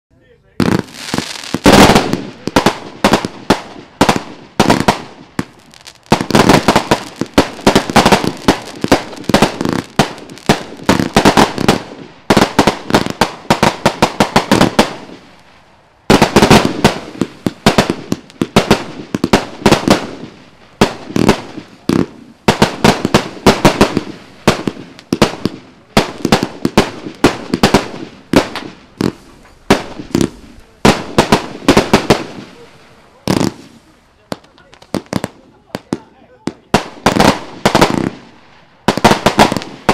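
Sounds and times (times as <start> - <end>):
firework aerial bursts: 0.5 - 39.9
firework launch bangs: 16.1 - 35.3.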